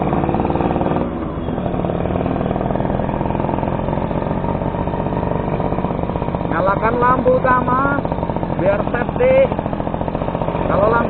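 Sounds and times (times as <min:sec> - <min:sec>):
two-stroke engine at low revs: 0:00.0 - 0:11.0.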